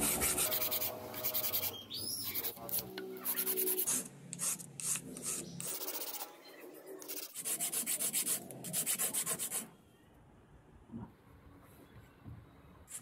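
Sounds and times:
wood sanding strokes: 0.0 - 1.7.

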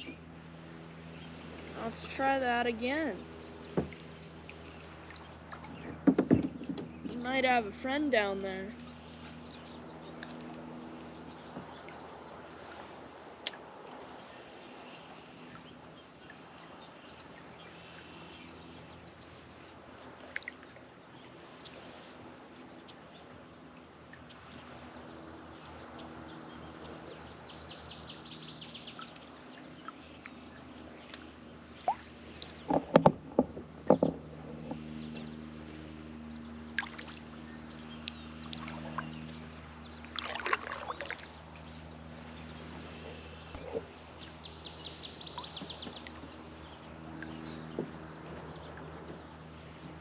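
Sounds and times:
steady low hum: 0.0 - 50.0
paddle splashes: 3.5 - 7.6, 8.8 - 27.4, 28.6 - 50.0
knocks on plastic hull: 5.8 - 7.2, 32.7 - 34.8.

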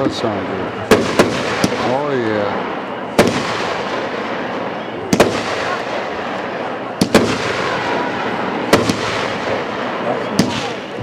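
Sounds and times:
fireworks bangs: 0.0 - 11.0.

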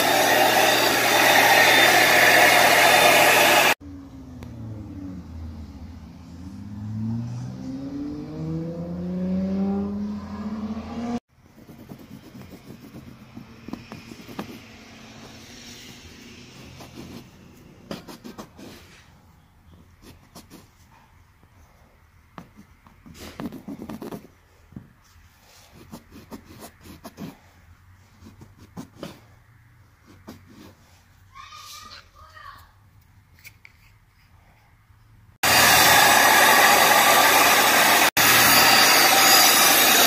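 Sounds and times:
scraper scraping fabric: 11.4 - 19.2, 22.4 - 24.4, 25.0 - 29.3, 30.0 - 31.2.

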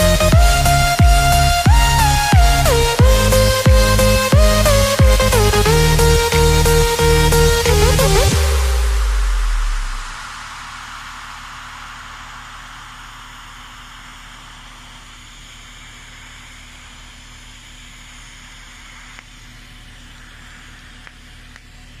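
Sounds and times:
low electrical hum: 0.0 - 22.0
welding arc hissing: 9.2 - 22.0.

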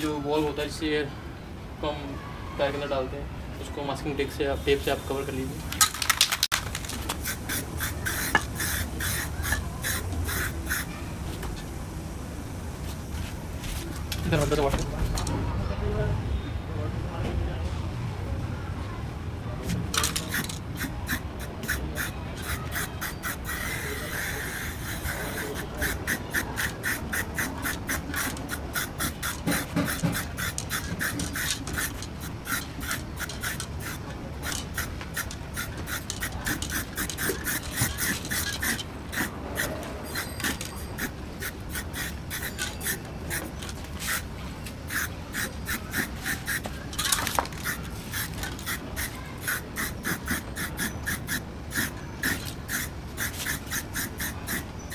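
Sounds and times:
spray paint can spraying: 5.7 - 11.5, 19.9 - 54.9.

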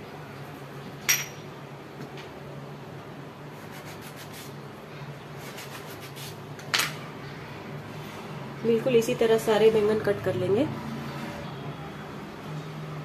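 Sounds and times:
metallic clink with ring: 1.1 - 1.4.

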